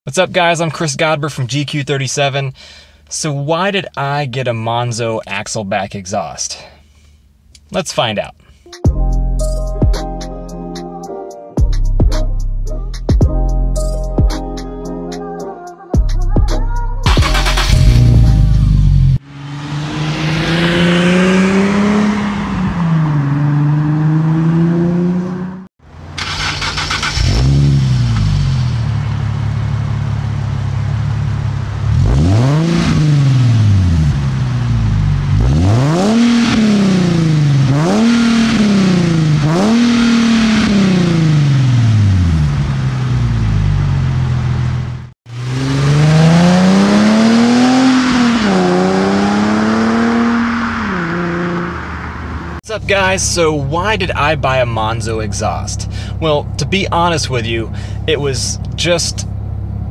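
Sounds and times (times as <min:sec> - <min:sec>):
car engine revving: 0:17.1 - 0:59.9
car driving past: 0:18.9 - 0:25.7, 0:45.3 - 0:52.6.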